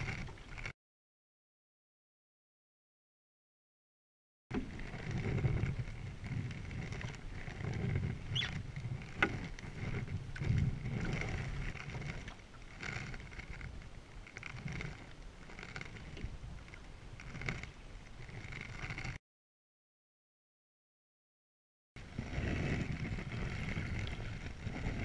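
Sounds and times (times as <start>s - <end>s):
paddle strokes in water: 0.0s - 0.7s, 4.5s - 19.2s, 22.0s - 25.0s
water lapping at hull: 22.1s - 25.0s.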